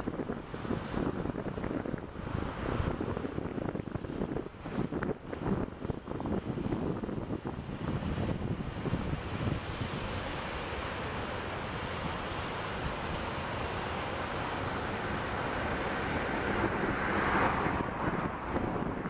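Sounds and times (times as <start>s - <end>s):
wind buffeting microphone: 0.0s - 19.0s
train rumbling over bridge: 10.6s - 19.0s.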